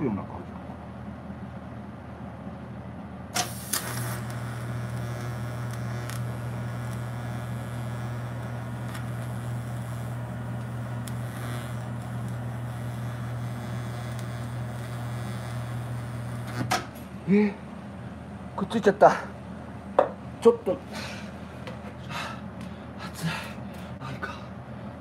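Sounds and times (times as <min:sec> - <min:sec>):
welding arc buzzing hum: 0:03.3 - 0:18.5
welding arc crackle: 0:03.4 - 0:17.0.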